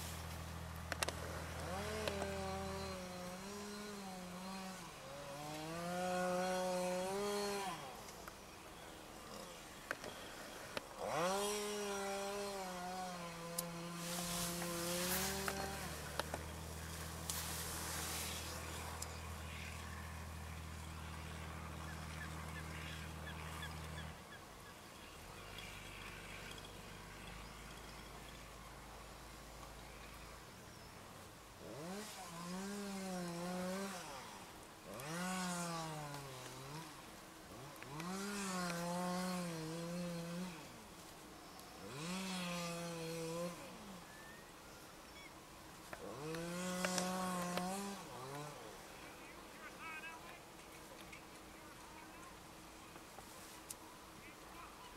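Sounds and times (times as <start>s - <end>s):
sharp clicks: 0.8s - 1.2s
chainsaw cutting into ice: 1.0s - 8.2s, 10.9s - 19.8s, 31.6s - 40.9s, 41.8s - 44.0s, 46.0s - 48.8s.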